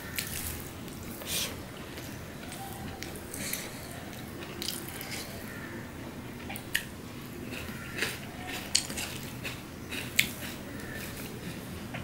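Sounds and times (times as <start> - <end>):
wet squishing and chewing: 1.9 - 5.4, 6.4 - 12.0.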